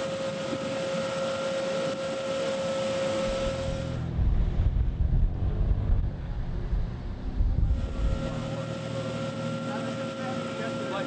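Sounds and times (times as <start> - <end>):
boat engine: 0.0 - 11.0
machinery hum with high whine: 0.0 - 11.0
wind buffeting microphone: 3.0 - 9.4.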